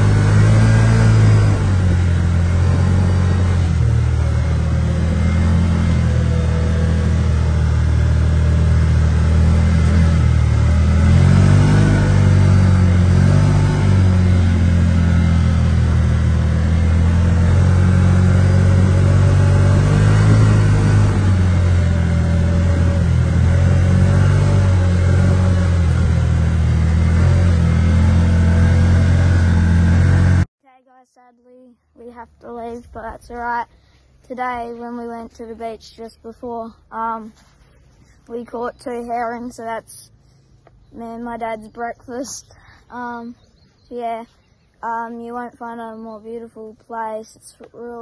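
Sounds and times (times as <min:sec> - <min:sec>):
buggy engine running: 0:00.0 - 0:30.5.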